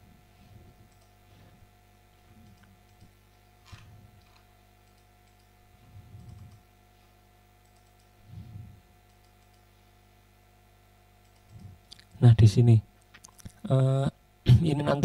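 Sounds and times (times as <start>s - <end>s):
steady electrical hum: 0.0s - 15.0s
faint computer clicking: 0.7s - 1.2s, 2.2s - 6.8s, 7.6s - 8.2s, 9.0s - 9.7s, 11.2s - 12.2s.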